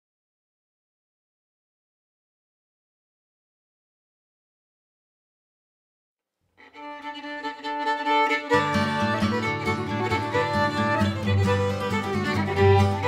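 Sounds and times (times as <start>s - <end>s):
background music tune: 6.7s - 13.0s.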